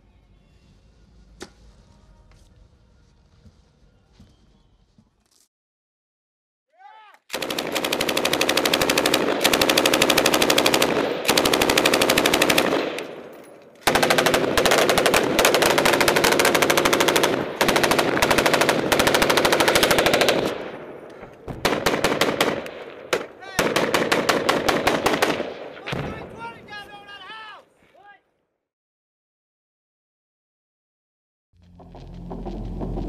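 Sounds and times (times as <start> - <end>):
automatic gunfire: 7.3 - 13.2, 13.8 - 20.8, 21.6 - 26.1.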